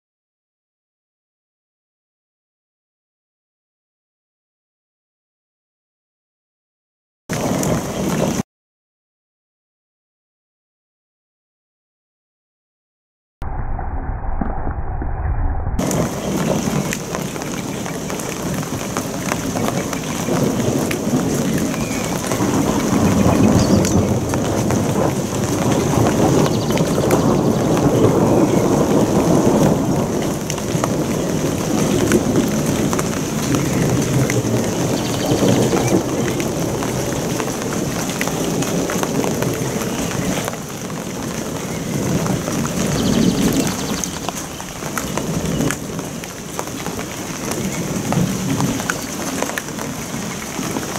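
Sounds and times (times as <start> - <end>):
steady rain: 7.3 - 8.4, 15.8 - 50.9
thunder rumbling: 13.4 - 50.9.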